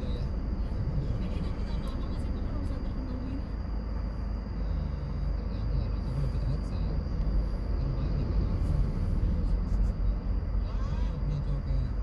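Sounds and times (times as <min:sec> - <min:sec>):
low vehicle rumble: 0:00.0 - 0:12.0.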